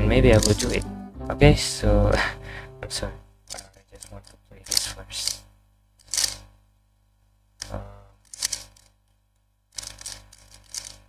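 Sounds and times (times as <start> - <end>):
puzzle cube turning clicks: 0.3 - 0.9, 6.0 - 6.4, 7.6 - 9.0, 9.7 - 11.0.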